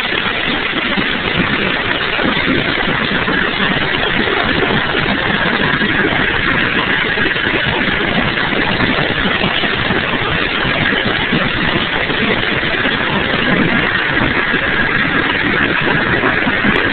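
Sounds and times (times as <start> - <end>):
helicopter engines and rotor: 0.0 - 16.9.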